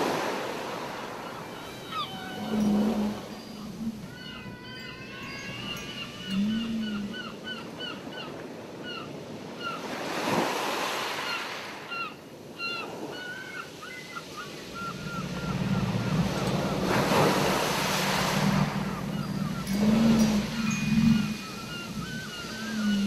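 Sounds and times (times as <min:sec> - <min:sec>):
ocean surf washing in: 0:00.0 - 0:04.1, 0:14.4 - 0:23.0
gulls mewing: 0:00.7 - 0:08.4, 0:12.0 - 0:23.0
low steady hum: 0:14.7 - 0:23.0.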